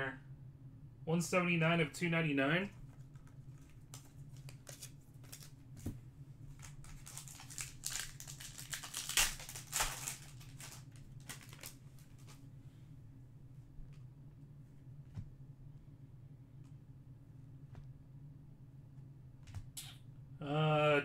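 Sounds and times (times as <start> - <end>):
faint low hum: 0.0 - 21.0
wrapper tearing and crinkling: 3.9 - 5.6, 6.6 - 12.3.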